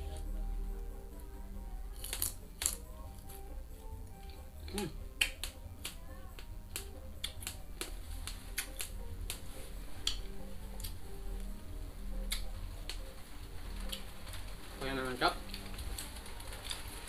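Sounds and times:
faint background music: 0:00.0 - 0:17.0
lip smacks while eating: 0:04.2 - 0:09.4, 0:10.0 - 0:11.0, 0:12.3 - 0:12.5.

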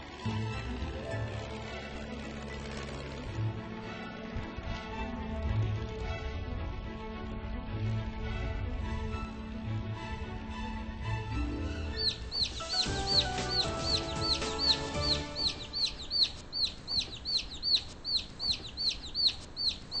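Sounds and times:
baby chicks peeping: 0:11.9 - 0:20.0.

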